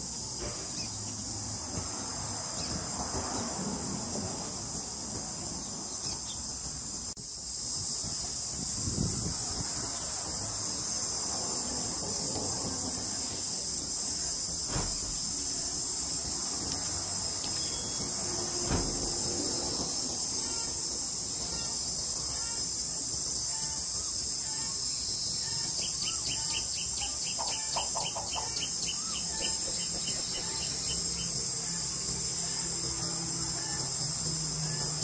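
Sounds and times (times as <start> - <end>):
insects buzzing: 0.0 - 35.0
soft thump: 14.7 - 15.3, 18.6 - 19.3
bird chirping: 17.6 - 18.1, 24.8 - 31.4.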